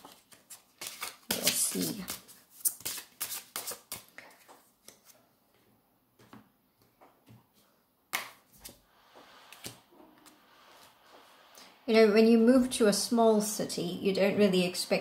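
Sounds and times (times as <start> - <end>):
cards being shuffled: 0.0 - 5.2.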